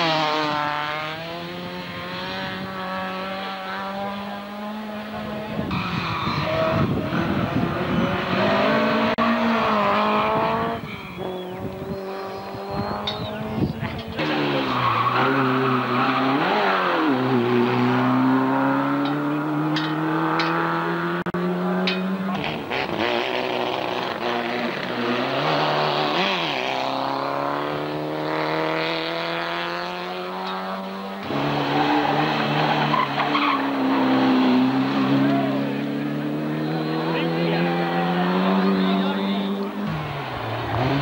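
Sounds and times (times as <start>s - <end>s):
race car engines accelerating: 0.0s - 41.0s.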